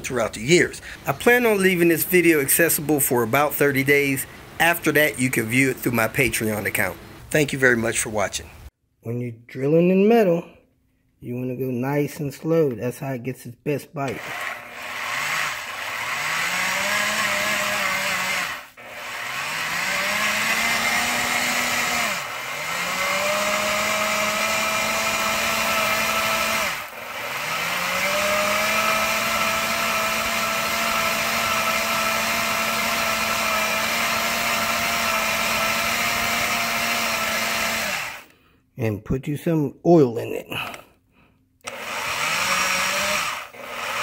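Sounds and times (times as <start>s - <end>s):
electric drill whining: 14.1s - 38.3s, 41.6s - 44.0s.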